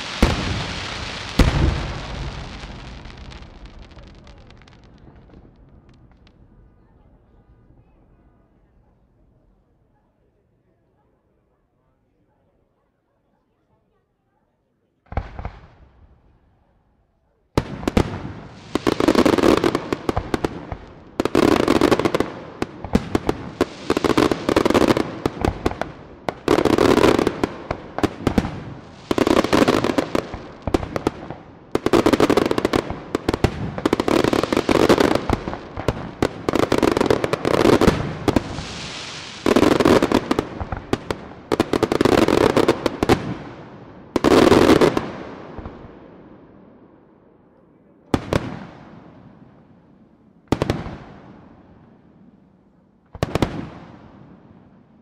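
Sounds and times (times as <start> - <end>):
firework bang: 0.0 - 6.4.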